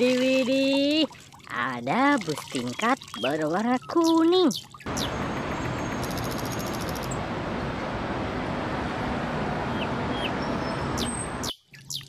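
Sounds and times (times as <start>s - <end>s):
city street traffic: 4.8s - 11.6s
bus driving by: 4.9s - 11.5s.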